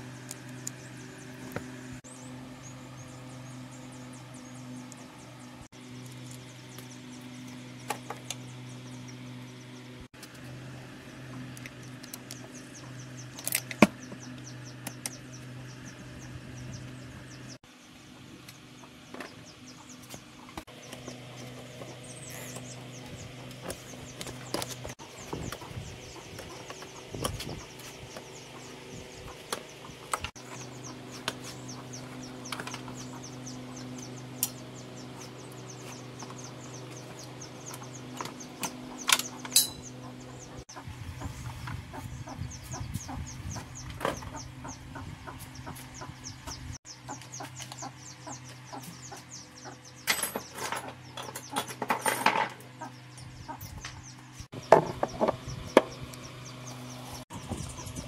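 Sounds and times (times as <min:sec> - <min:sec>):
steady low hum: 0:00.0 - 0:58.0
metal tools clicking and knocking: 0:38.6 - 0:39.9, 0:50.0 - 0:52.6.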